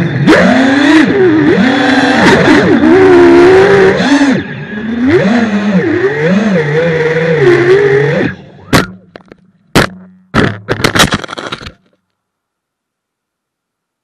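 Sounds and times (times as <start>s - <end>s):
drone propellers whining: 0.0s - 9.5s.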